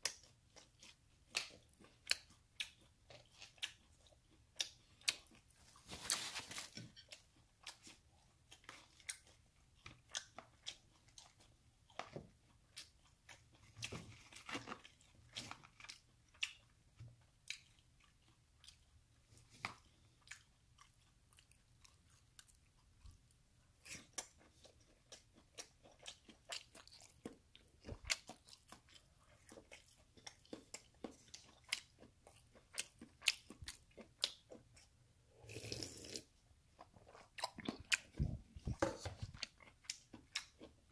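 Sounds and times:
crunchy chewing and biting: 0.0s - 16.8s, 17.4s - 36.1s, 36.8s - 40.9s.

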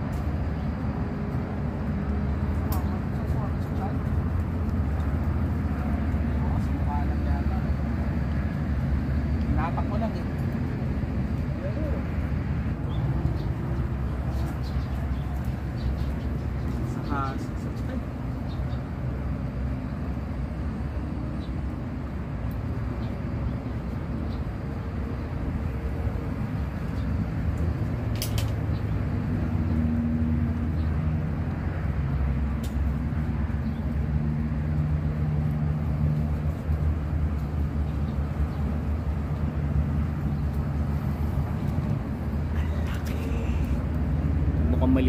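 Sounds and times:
low outdoor rumble: 0.0s - 45.0s
sharp click: 28.1s - 28.6s.

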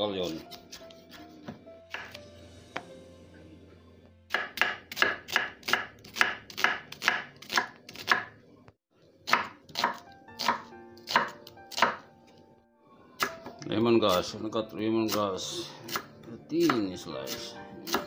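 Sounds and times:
knife chopping onion on wooden board: 0.3s - 2.2s, 4.3s - 8.4s, 9.2s - 12.1s, 15.8s - 18.0s.

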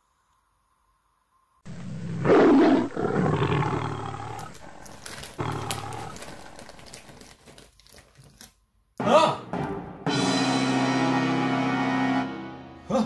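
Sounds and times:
big cat roaring: 1.7s - 6.8s.

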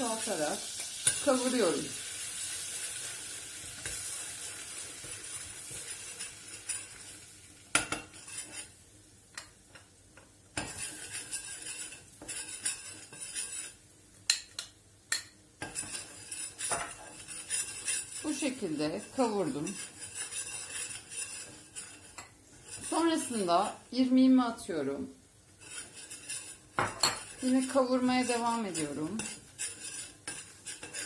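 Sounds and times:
butter sizzling in a pot: 0.0s - 31.0s
spoon scraping and clinking in pot: 0.8s - 1.6s, 3.7s - 8.8s, 10.6s - 23.9s, 25.6s - 31.0s.

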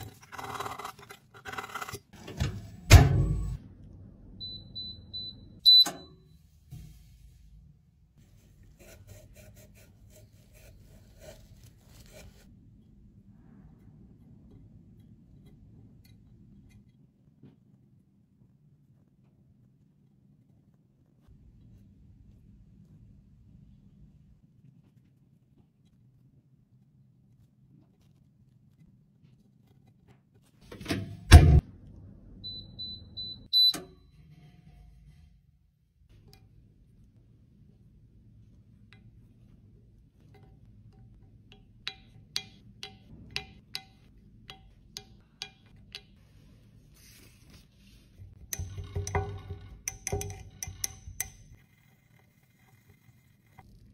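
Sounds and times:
short electronic beeps: 4.4s - 6.1s, 32.4s - 33.8s
tissue rubbing plastic palette: 8.2s - 12.5s, 46.3s - 48.4s.

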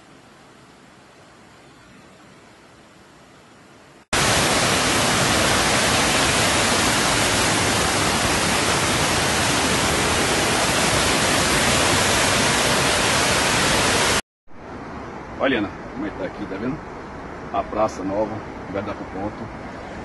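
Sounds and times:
floodwater rushing: 4.2s - 14.2s.

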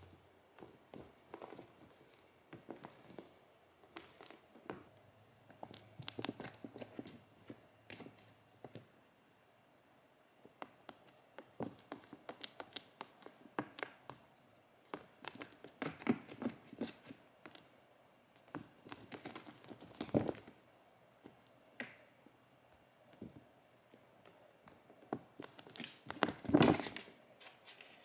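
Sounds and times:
cat paws scratching cardboard: 5.5s - 8.3s, 10.6s - 14.2s, 14.9s - 17.7s.

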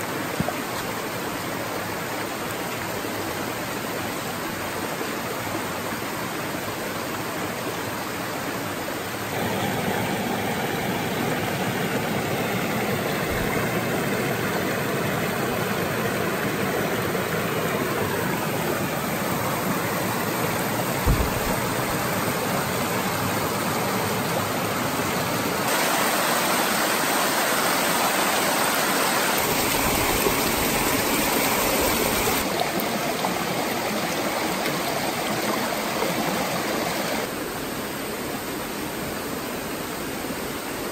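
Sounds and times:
stream rushing over rocks: 0.0s - 40.9s
low thump: 21.0s - 21.9s.

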